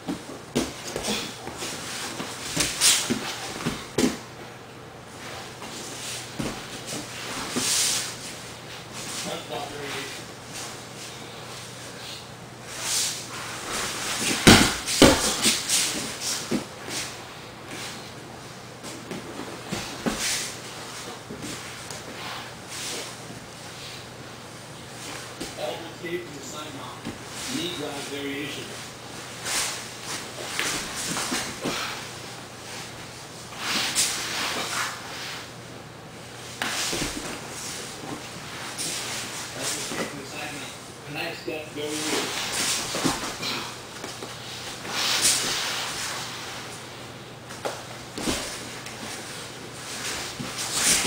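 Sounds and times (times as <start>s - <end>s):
bodies scuffing and rustling: 5.1s - 11.7s, 12.7s - 18.1s, 36.3s - 40.7s, 47.4s - 51.0s
bodies thudding on mat: 13.8s - 16.7s, 47.6s - 49.2s
bodies scuffing on foam mat: 36.4s - 40.2s, 47.6s - 51.0s.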